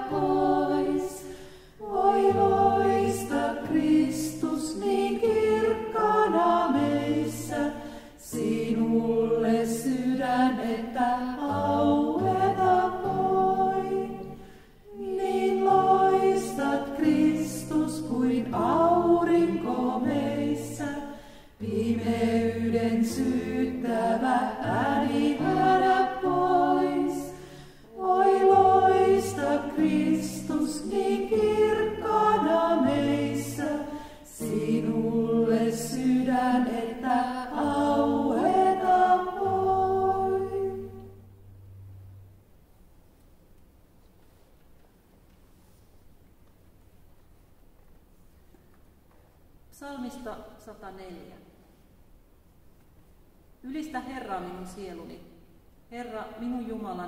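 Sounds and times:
women singing a hymn: 0.0s - 41.4s.

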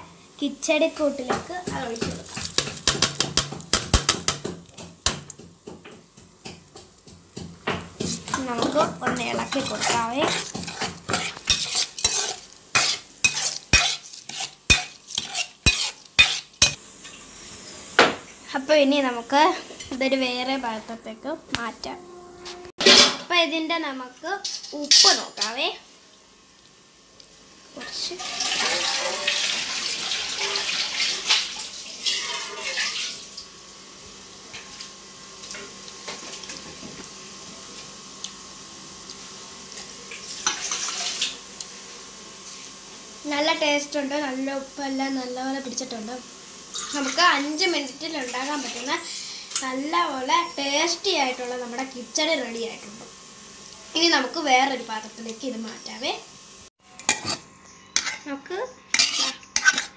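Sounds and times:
water running and splashing: 1.4s - 5.4s, 28.0s - 33.5s.

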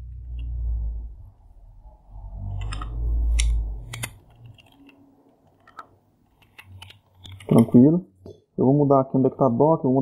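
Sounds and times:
low rumble: 0.0s - 4.2s.

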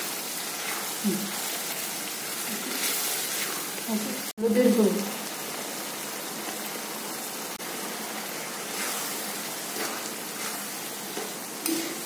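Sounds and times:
paste sizzling in oil: 0.0s - 12.0s
spatula scraping pan: 8.3s - 11.5s.

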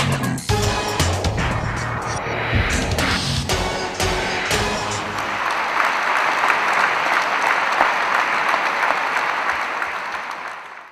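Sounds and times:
large audience applauding: 4.9s - 10.9s.

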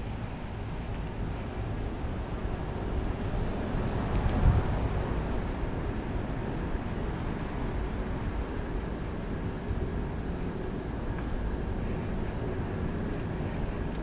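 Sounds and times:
faint ticks: 0.0s - 3.1s, 3.9s - 5.9s, 7.5s - 9.8s, 10.4s - 14.0s
bicycle rolling over bricks: 0.0s - 14.0s
wind on microphone: 0.0s - 14.0s.

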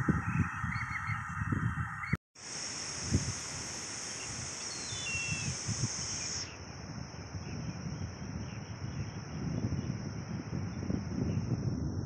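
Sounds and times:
low wind rumble on microphone: 0.0s - 2.2s, 2.8s - 12.0s
high-pitched insect drone: 2.4s - 11.7s
short bird call: 4.2s - 6.5s.

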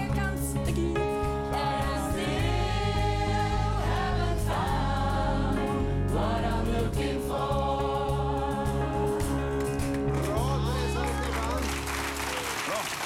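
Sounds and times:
people singing: 0.0s - 10.0s
band accompaniment: 0.0s - 13.0s.

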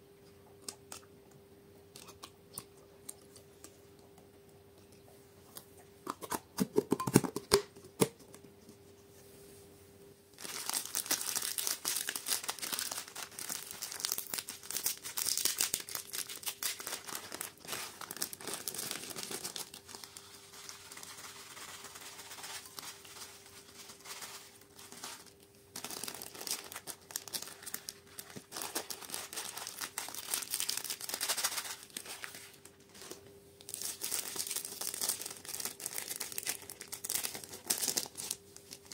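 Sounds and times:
faint hum: 0.0s - 38.9s
plastic bag crinkling: 10.4s - 38.9s.

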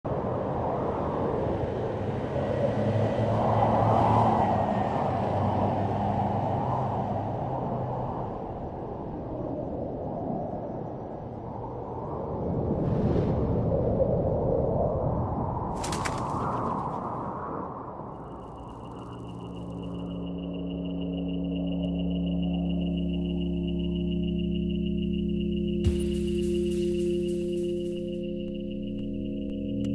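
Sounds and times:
wind rush: 0.1s - 19.4s
softly pulsing high tone: 18.0s - 29.9s.

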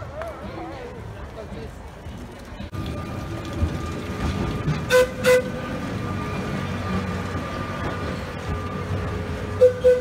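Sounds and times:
moving tram hum: 0.0s - 10.0s
tram horn toots: 4.8s - 7.6s, 9.5s - 10.0s.

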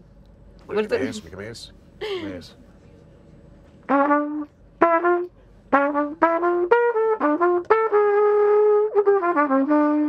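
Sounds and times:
trumpet melody: 3.9s - 10.0s.

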